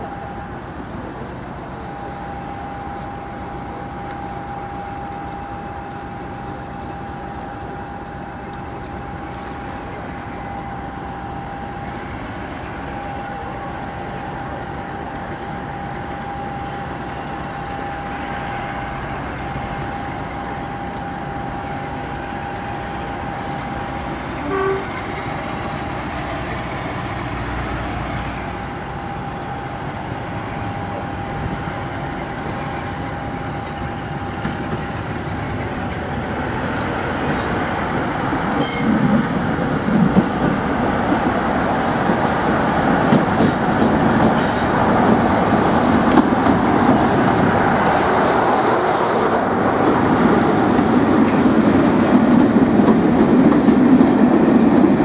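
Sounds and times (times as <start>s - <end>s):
thin steady whine: 0.0s - 37.0s
diesel locomotive engine running: 0.0s - 55.0s
short horn toot: 24.4s - 24.9s.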